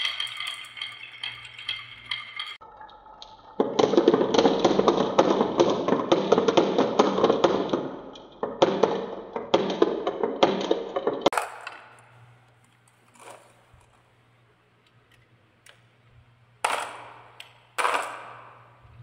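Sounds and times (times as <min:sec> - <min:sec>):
marbles clattering on wooden track: 0:00.0 - 0:02.7, 0:03.3 - 0:12.1, 0:16.6 - 0:19.0.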